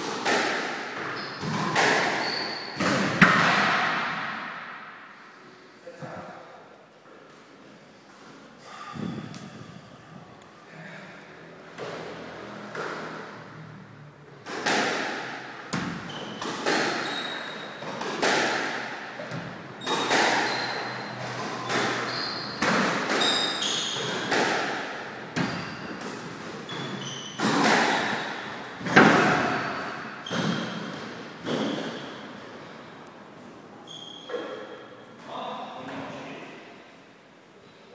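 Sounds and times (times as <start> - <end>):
squash ball hitting racquets and walls: 0.0 - 5.2, 11.7 - 13.7, 14.3 - 32.9, 33.9 - 35.3
shoes squeaking on wooden floor: 1.0 - 3.0, 16.0 - 18.0, 19.8 - 24.2, 26.6 - 27.5, 33.8 - 34.7.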